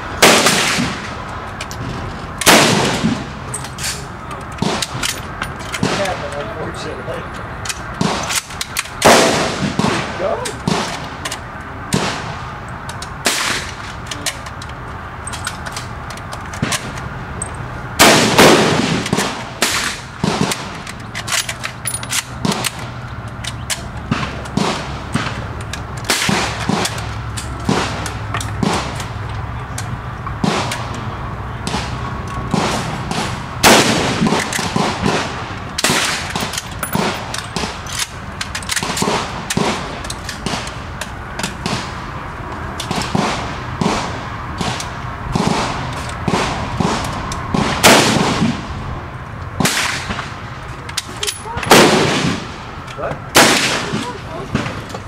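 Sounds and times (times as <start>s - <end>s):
loud rifle shots with echo: 0.2s - 1.2s, 2.4s - 3.3s, 9.0s - 11.1s, 13.2s - 13.7s, 18.0s - 20.8s, 31.6s - 37.8s, 42.9s - 48.6s, 49.6s - 50.3s, 51.6s - 52.6s, 53.3s - 54.8s
quieter gunshots: 0.2s - 1.2s, 2.4s - 3.4s, 8.0s - 11.2s, 11.9s - 12.5s, 13.2s - 13.8s, 18.0s - 20.8s, 24.1s - 25.5s, 26.1s - 27.0s, 27.6s - 28.0s, 30.4s - 30.9s, 31.6s - 37.8s, 38.8s - 40.8s, 41.6s - 42.0s, 42.9s - 48.7s, 49.6s - 50.4s, 51.7s - 54.8s.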